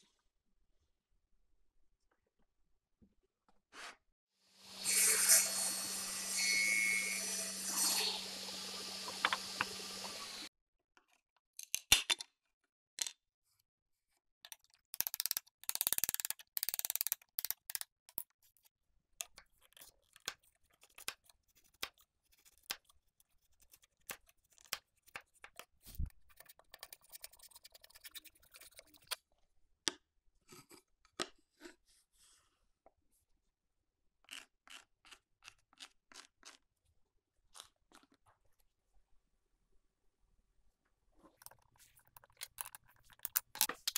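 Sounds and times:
table saw cutting wood: 0:04.6 - 0:10.5.

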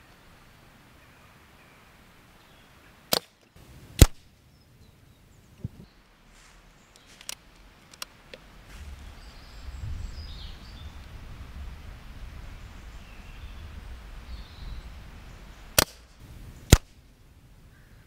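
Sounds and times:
air rifle cracks: 0:03.1 - 0:04.3, 0:15.8 - 0:17.0.

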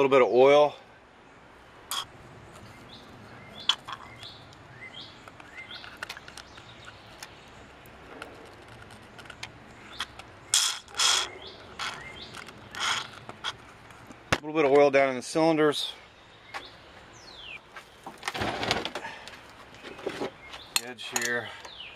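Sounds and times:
clicks and squeaks of handling: 0:03.6 - 0:04.6, 0:05.2 - 0:14.8, 0:17.9 - 0:21.8.

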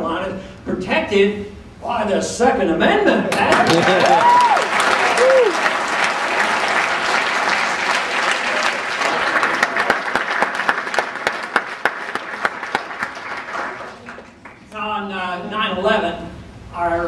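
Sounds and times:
audience applause: 0:03.4 - 0:14.6.

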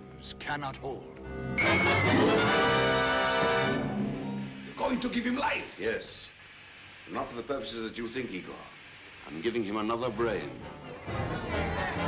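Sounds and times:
orchestral film music: 0:01.2 - 0:04.5.

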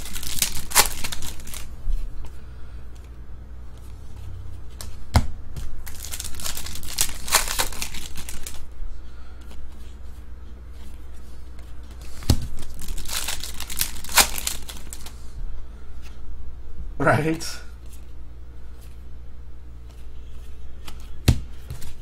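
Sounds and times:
foil wrapper crinkling and tearing: 0:00.0 - 0:01.7, 0:05.8 - 0:08.6, 0:12.5 - 0:15.1.

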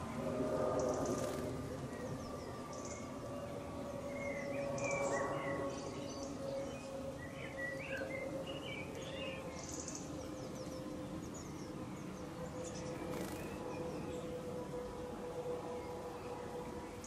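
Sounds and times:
faint steady hum: 0:00.0 - 0:17.0
songbirds chirping: 0:00.0 - 0:17.0.

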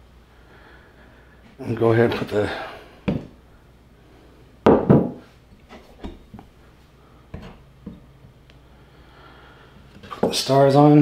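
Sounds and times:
objects knocking on workbench: 0:03.1 - 0:03.3, 0:04.7 - 0:05.3.

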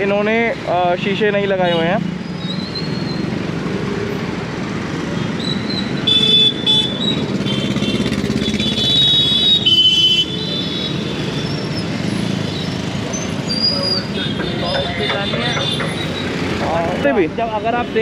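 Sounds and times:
street traffic: 0:00.0 - 0:18.0
vehicle horns honking: 0:06.0 - 0:11.7, 0:13.5 - 0:16.2.

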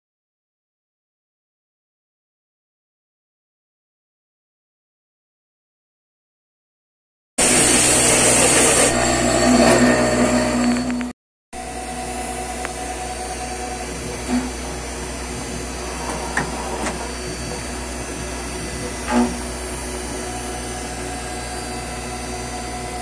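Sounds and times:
hiss of cutting wood: 0:07.4 - 0:09.0
machine spindle whine: 0:07.4 - 0:23.0.

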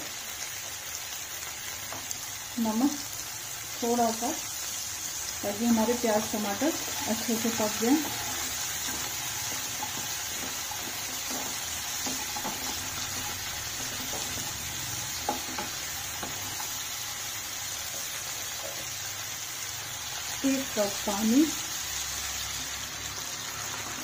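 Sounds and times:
onion and tomatoes sizzling: 0:00.0 - 0:24.0
stirring knocks: 0:05.9 - 0:16.9.

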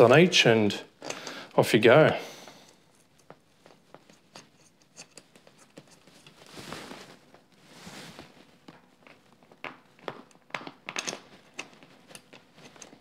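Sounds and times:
soft scraping rustles: 0:02.5 - 0:09.4.

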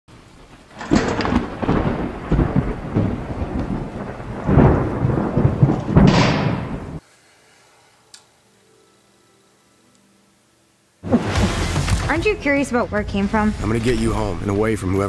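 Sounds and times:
heavy rain: 0:00.1 - 0:07.0, 0:11.0 - 0:12.4
loud thunder claps: 0:00.5 - 0:07.0.

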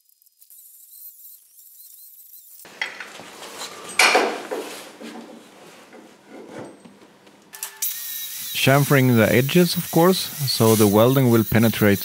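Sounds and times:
loud metal clunk: 0:02.7 - 0:07.3
metal clanks and scrapes: 0:02.7 - 0:07.3.

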